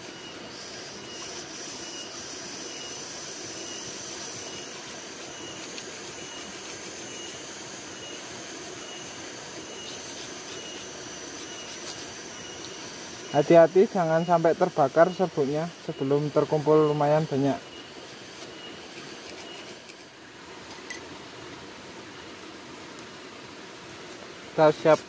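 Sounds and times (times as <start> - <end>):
striker scraping magnesium rod: 17.7 - 20.1.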